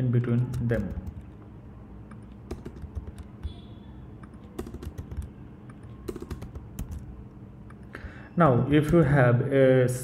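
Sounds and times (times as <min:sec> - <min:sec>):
keyboard key clicks: 0:02.1 - 0:03.4, 0:04.2 - 0:07.0.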